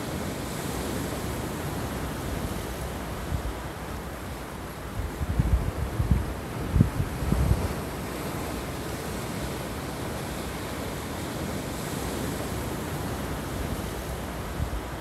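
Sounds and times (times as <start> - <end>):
surf washing over rocks: 0.0 - 15.0
wind buffeting microphone: 4.8 - 15.0.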